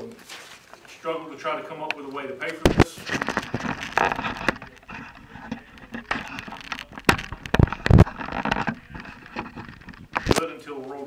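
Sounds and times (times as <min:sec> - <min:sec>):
camera handling noise: 0:02.4 - 0:10.4
loud thumps: 0:02.6 - 0:10.4.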